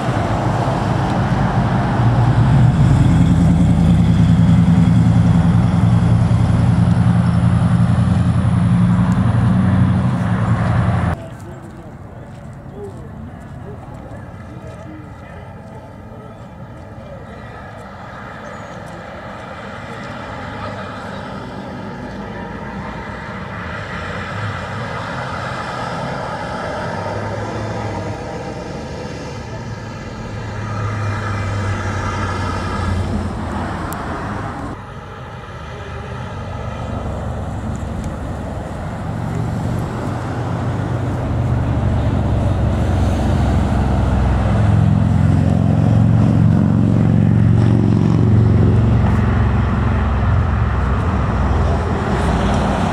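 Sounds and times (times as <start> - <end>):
highway traffic passing: 0.0 - 52.9
low rumble of vehicles: 0.0 - 52.9.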